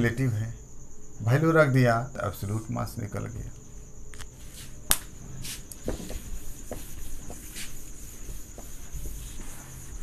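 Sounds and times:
crickets chirring: 0:00.0 - 0:10.0
cloth duster tapping and swishing: 0:04.9 - 0:10.0.

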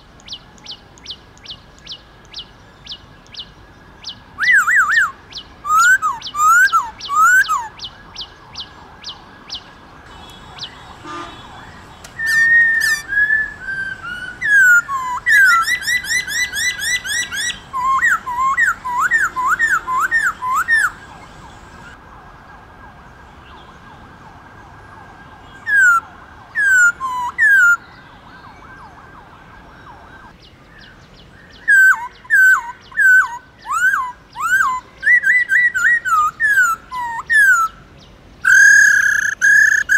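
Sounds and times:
bird singing whistled phrases: 0:00.6 - 0:09.6, 0:10.2 - 0:21.7, 0:31.5 - 0:37.8, 0:38.4 - 0:39.9.

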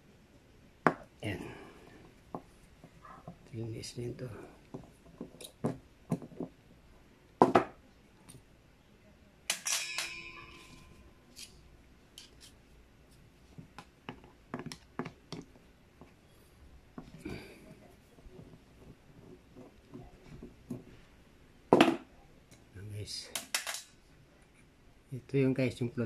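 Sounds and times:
ringing metal clink: 0:09.5 - 0:11.2.

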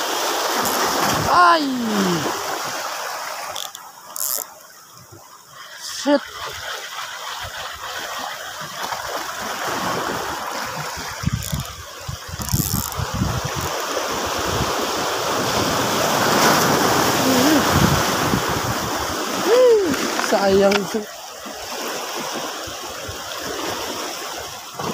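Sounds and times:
small waves washing over rocks: 0:00.0 - 0:24.9
wind buffeting microphone: 0:09.6 - 0:20.9.

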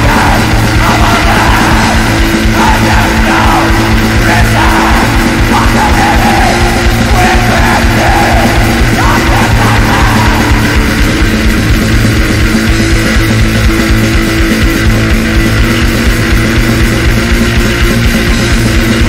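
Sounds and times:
harsh yelled vocals: 0:00.0 - 0:13.0
distorted guitar: 0:00.0 - 0:19.0
rapid dense drumming: 0:00.0 - 0:19.0.

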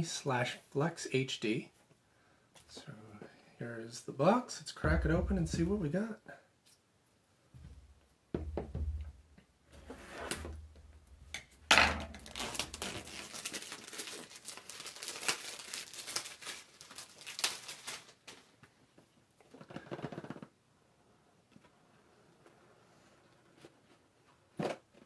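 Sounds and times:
packaging crinkling: 0:12.1 - 0:18.6.

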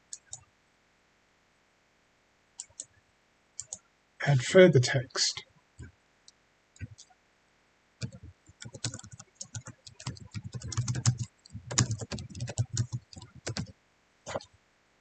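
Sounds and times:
computer keyboard typing: 0:00.1 - 0:00.4, 0:02.6 - 0:02.9, 0:03.6 - 0:03.8, 0:06.8 - 0:07.1, 0:08.0 - 0:13.7, 0:14.3 - 0:14.5.

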